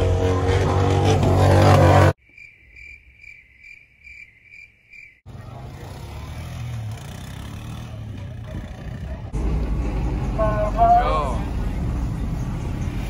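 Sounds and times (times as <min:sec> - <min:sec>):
four-wheeler engine rumbling: 0:00.0 - 0:02.2, 0:05.3 - 0:13.0.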